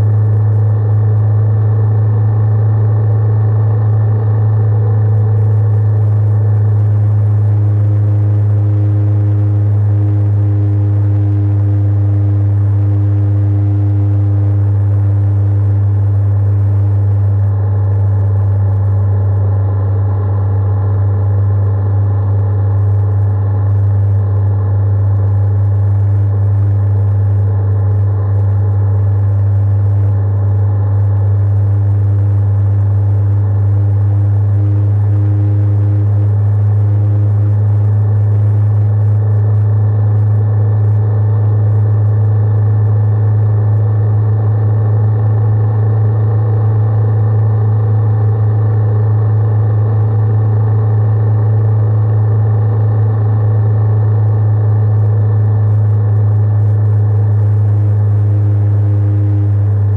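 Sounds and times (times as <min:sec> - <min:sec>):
motorcycle engine droning: 0:00.0 - 0:42.2, 0:55.1 - 0:59.9.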